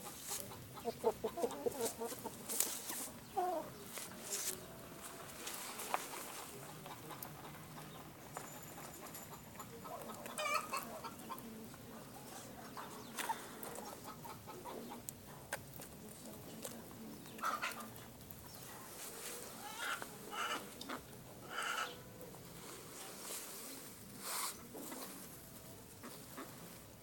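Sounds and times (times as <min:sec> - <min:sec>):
chickens clucking: 0:00.0 - 0:27.0.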